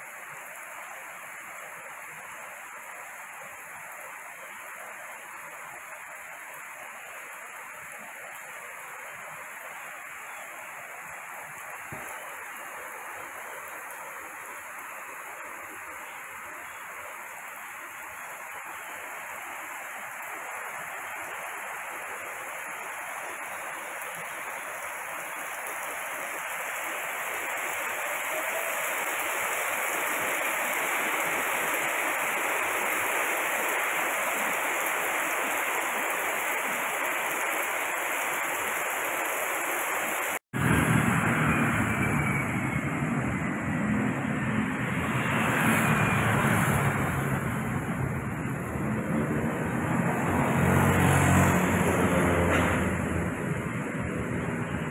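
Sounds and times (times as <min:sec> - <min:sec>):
heavy rain pouring: 0:00.0 - 0:54.9.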